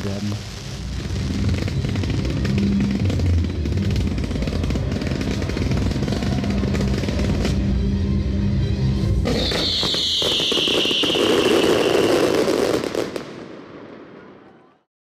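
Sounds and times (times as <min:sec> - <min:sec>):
fireworks bangs and crackling: 0:00.0 - 0:07.9, 0:09.2 - 0:14.8
whistling firework hiss: 0:09.2 - 0:14.2.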